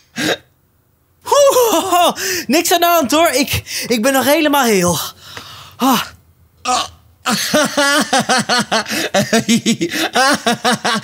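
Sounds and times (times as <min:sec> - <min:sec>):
person laughing: 0:01.3 - 0:02.2, 0:07.3 - 0:11.0.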